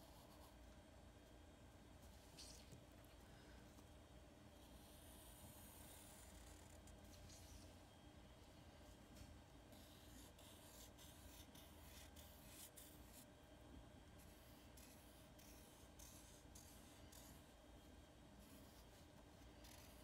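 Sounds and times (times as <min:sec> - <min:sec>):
marker scratching on paper: 0:04.7 - 0:07.6, 0:09.7 - 0:13.2, 0:14.2 - 0:17.5, 0:18.4 - 0:20.0.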